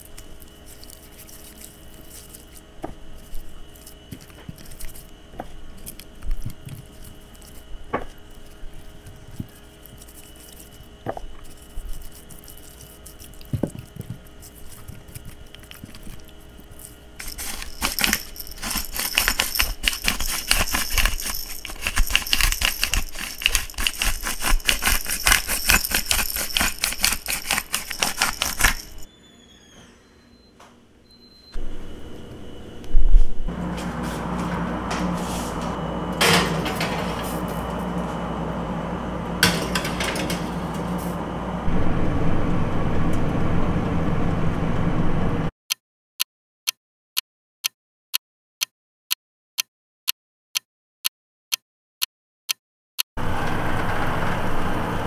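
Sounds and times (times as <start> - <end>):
hands rubbing seasoning on chicken: 0.0 - 5.1, 5.8 - 29.0
pepper grinder crunchy clicking: 3.2 - 29.1.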